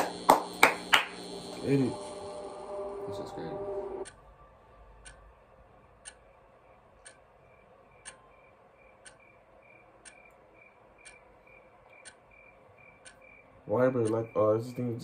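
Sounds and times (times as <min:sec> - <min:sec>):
faint high pulsing tone: 0:01.2 - 0:04.5
clock ticking: 0:04.0 - 0:04.3, 0:04.9 - 0:15.0.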